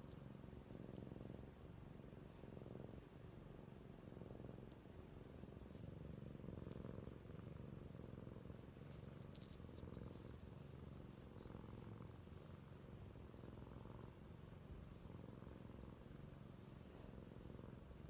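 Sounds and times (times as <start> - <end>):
cat purring: 0.0 - 18.0
collar bell tinkling: 8.9 - 11.6.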